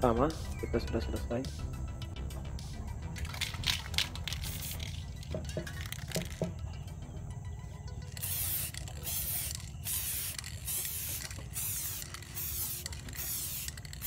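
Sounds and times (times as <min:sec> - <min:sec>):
aerosol spray paint hissing: 0:03.8 - 0:06.4, 0:08.2 - 0:14.0.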